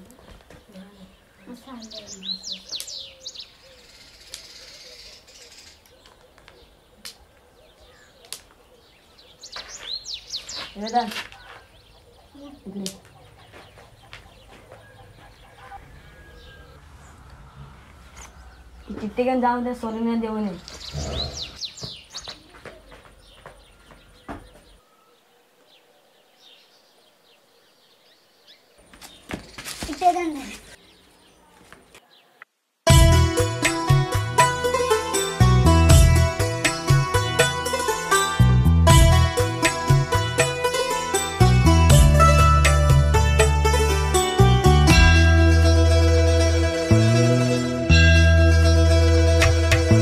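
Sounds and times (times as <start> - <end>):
small birds chirping: 0.0 - 32.5
high bird chirps: 7.7 - 12.5
low cooing call: 14.4 - 18.9.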